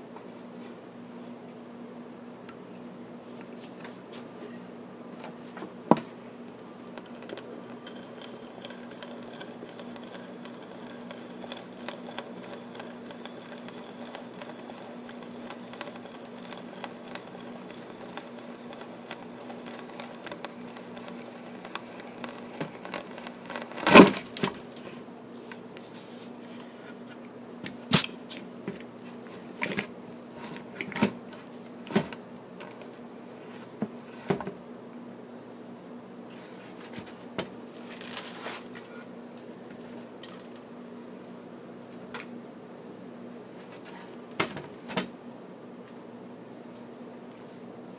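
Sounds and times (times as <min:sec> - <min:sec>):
auger bit boring into wood: 0:06.8 - 0:24.1
loud crunch: 0:19.1 - 0:24.5.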